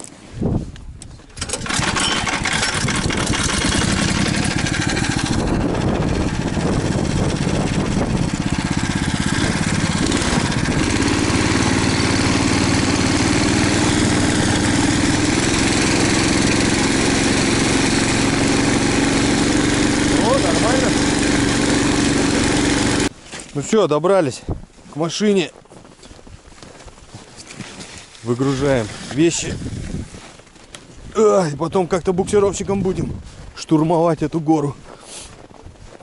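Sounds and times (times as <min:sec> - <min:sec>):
small engine running: 0:01.4 - 0:23.1.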